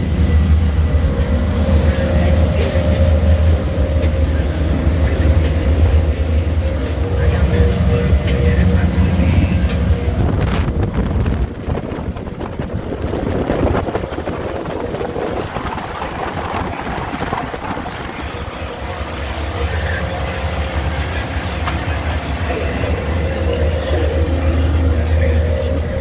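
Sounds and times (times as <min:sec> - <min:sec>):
wind buffeting microphone: 0:00.0 - 0:19.3
heavy low rumble: 0:00.0 - 0:26.0
motorboat running at speed: 0:00.0 - 0:26.0
water rushing past hull: 0:00.0 - 0:26.0.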